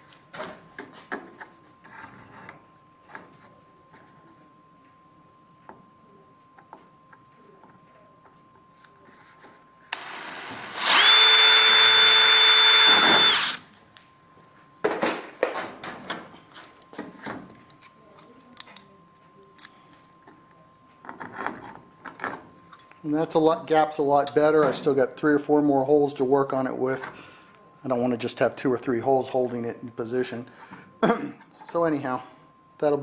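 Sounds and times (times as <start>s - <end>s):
power drill whining through metal: 9.9s - 13.6s.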